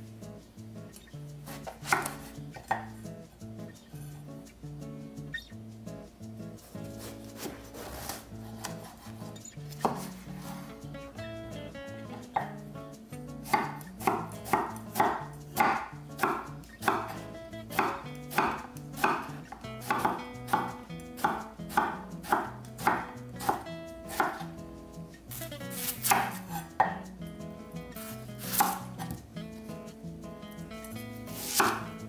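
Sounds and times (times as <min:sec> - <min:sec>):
knife chopping on cutting board: 0:01.6 - 0:02.9, 0:06.9 - 0:10.7, 0:12.4 - 0:12.6, 0:13.4 - 0:24.5, 0:25.8 - 0:27.0, 0:28.4 - 0:29.2, 0:31.4 - 0:31.9.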